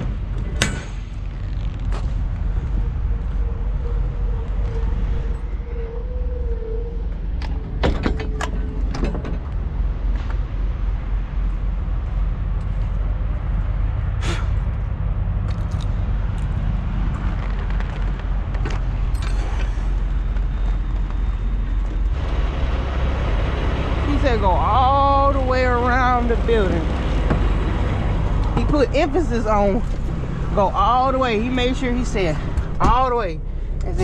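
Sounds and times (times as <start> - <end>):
metal clanks of door latches: 0.3 - 1.2, 7.4 - 9.5
idling diesel truck rumble: 18.4 - 34.0.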